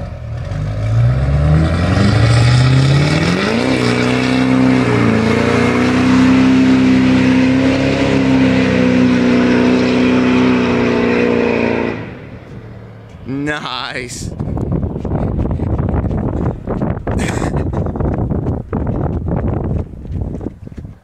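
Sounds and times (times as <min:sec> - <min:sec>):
pickup engine revving: 0:00.0 - 0:13.6
tires spinning on asphalt: 0:00.0 - 0:21.0.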